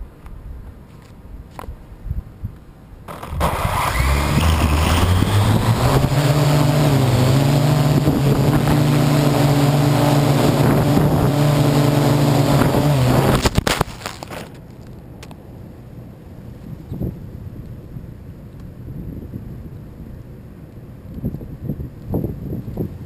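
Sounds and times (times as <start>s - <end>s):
drone motors whining: 3.1s - 13.5s
drone crashing into brush: 3.1s - 14.3s.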